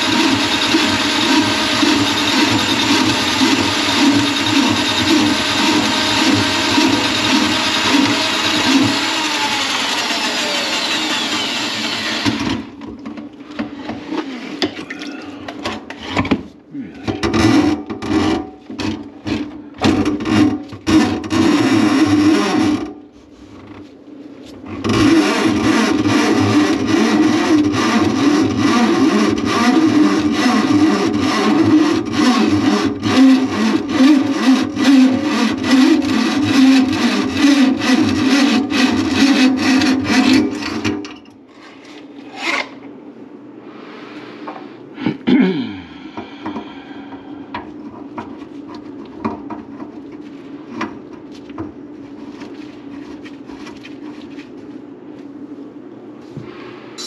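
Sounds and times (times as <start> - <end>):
drain auger rattling: 0.0 - 12.8.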